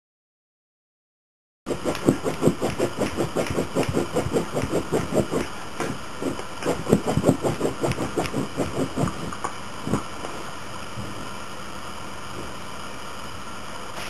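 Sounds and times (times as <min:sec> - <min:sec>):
dog claws scraping rug: 0:01.7 - 0:10.0.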